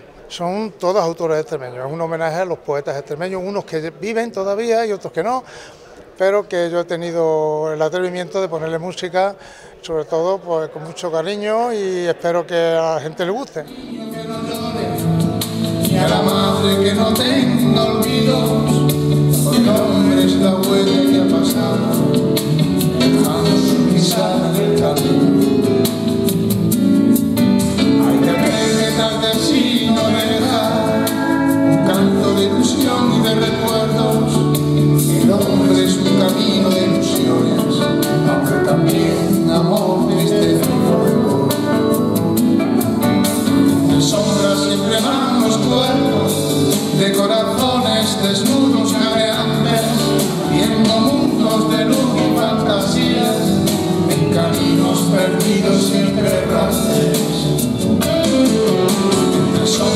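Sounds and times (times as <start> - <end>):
man singing: 13.3 - 59.9
acoustic guitar: 13.4 - 59.9.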